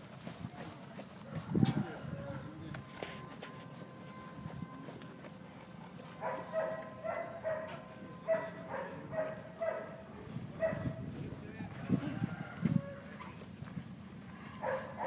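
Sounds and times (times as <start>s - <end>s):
dog barking: 6.2s - 10.0s, 10.6s - 11.0s, 14.6s - 15.0s.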